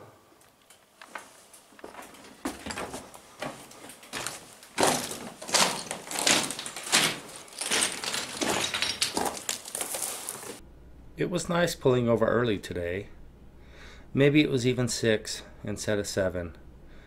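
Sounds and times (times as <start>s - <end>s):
footsteps crunching on gravel: 1.1s - 10.6s.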